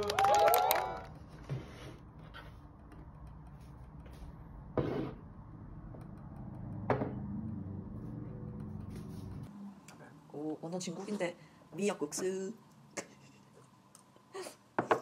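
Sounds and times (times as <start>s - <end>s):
low steady hum: 0.0s - 14.7s.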